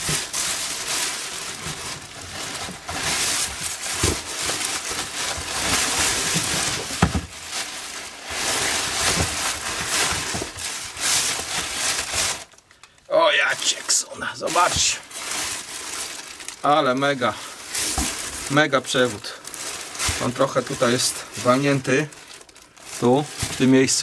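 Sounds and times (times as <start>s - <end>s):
plastic sacks crinkling: 0.0s - 24.0s
dull thumps against cardboard box: 6.9s - 7.3s.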